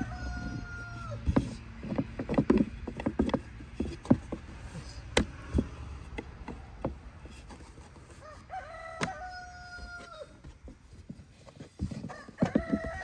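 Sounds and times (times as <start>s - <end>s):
rooster crowing: 0.0s - 1.4s, 8.1s - 10.4s, 12.0s - 13.0s
sharp clicks and knocks: 1.2s - 8.2s.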